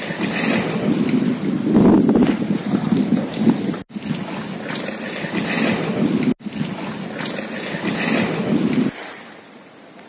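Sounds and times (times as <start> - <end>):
wind rushing over microphone: 0.0 - 4.4, 5.3 - 7.1, 7.8 - 9.0
water washing: 0.0 - 9.8.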